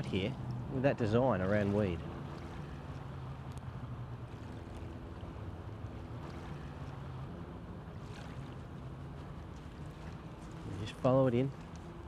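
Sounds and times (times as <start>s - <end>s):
low motor drone: 0.0s - 12.0s
faint ticks: 11.6s - 11.9s.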